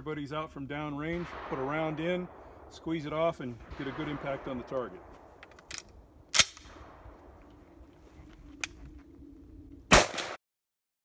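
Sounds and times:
shotgun blast: 1.0 - 7.4, 9.9 - 10.4.

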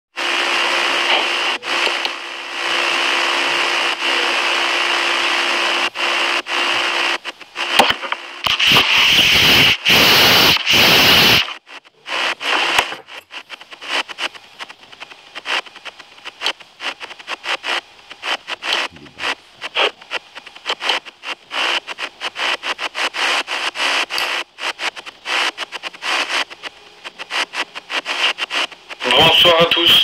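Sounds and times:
faint steady hum: 0.2 - 30.0
microphone hissing and crackling: 0.3 - 30.0
clicks and crackles: 7.2 - 9.0, 11.4 - 29.1.

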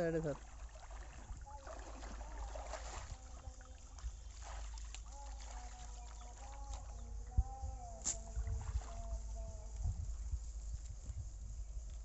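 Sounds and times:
water sloshing around legs: 0.0 - 7.1, 8.4 - 9.2
wind rumble on microphone: 0.4 - 12.0.

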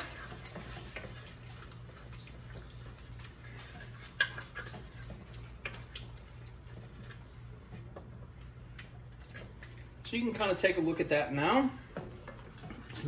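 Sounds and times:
wooden spoon scraping pot: 0.0 - 8.5.

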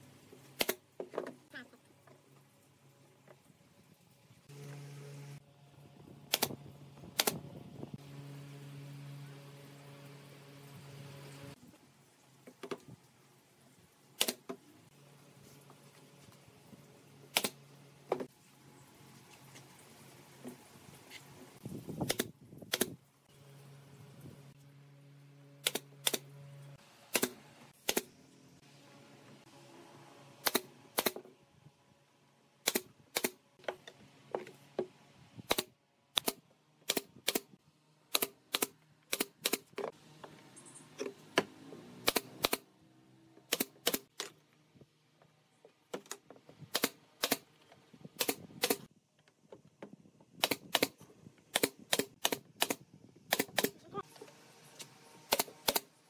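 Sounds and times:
nail gun firing into wood: 6.3 - 6.6, 7.2 - 7.4, 22.0 - 23.0, 25.6 - 26.2, 27.1 - 28.1, 30.4 - 31.2, 32.6 - 33.4, 35.5 - 37.5, 42.0 - 42.7, 43.5 - 44.1, 50.4 - 53.8, 55.3 - 55.9.

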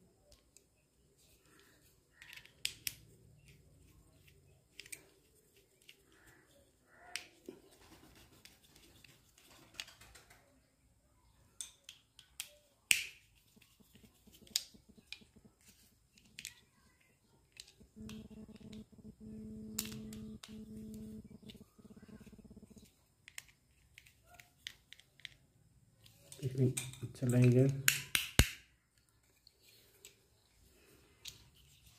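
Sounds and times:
screwdriver clicking and scraping: 2.1 - 3.6, 4.2 - 6.1
steady low hum: 17.8 - 22.8.

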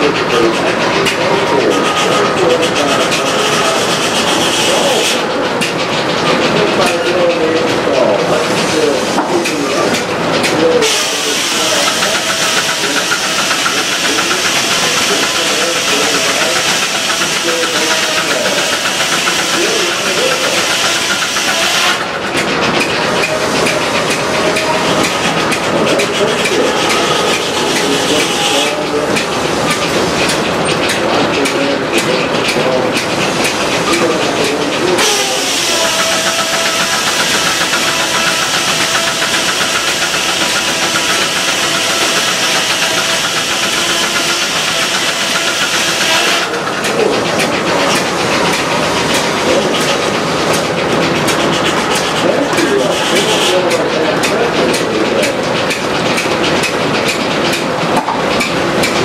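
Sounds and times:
steam sawmill running: 0.0 - 59.0
steam hissing: 1.3 - 5.4, 10.5 - 22.2, 23.0 - 55.3
saw blade cutting log: 33.9 - 46.6, 51.3 - 53.7.

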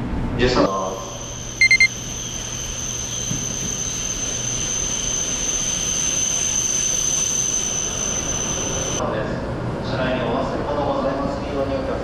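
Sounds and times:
high-speed train whining and rushing: 2.2 - 9.8.

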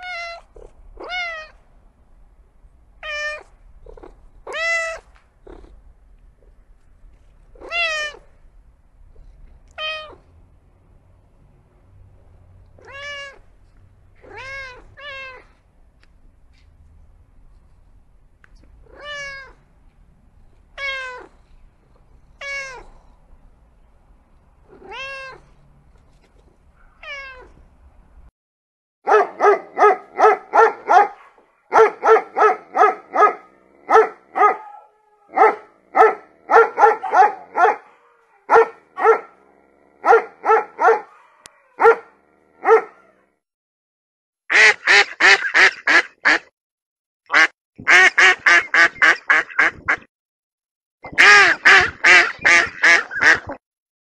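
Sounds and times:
kitten meowing: 0.0 - 1.6, 3.0 - 5.1, 7.6 - 8.2, 9.7 - 10.2, 12.8 - 13.4, 14.2 - 15.5, 24.7 - 25.4
dog barking: 29.1 - 43.2
duck quacking: 44.5 - 46.5, 47.3 - 50.1, 51.1 - 53.6.

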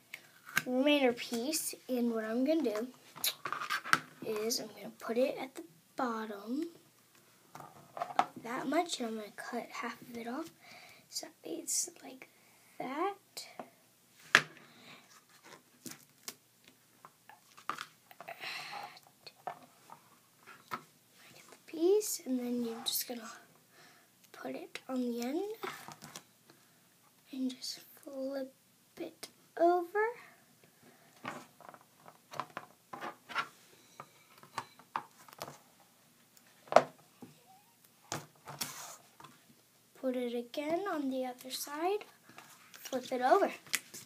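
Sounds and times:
tape rustling: 38.1 - 39.4.

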